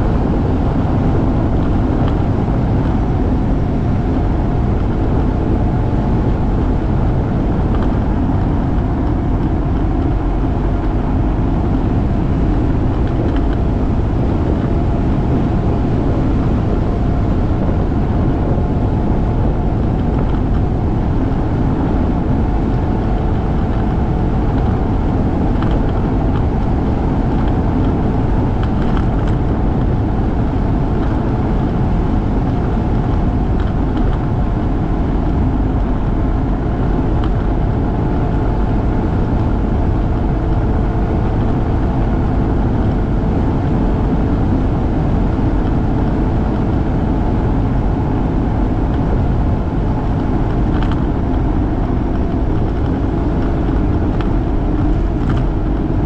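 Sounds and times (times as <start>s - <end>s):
motorcycle engine cruising: 0.0s - 56.0s
wind rushing over microphone: 0.0s - 56.0s.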